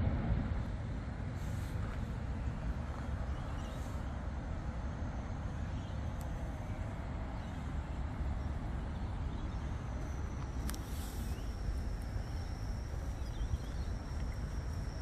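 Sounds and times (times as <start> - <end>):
distant road traffic rumble: 0.0 - 15.0
faint click: 10.4 - 11.0.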